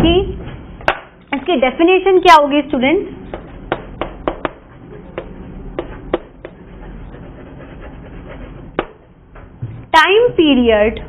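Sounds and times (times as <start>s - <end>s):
chalk tapping on chalkboard: 3.3s - 9.0s
chalk scratching hiss: 6.5s - 8.8s.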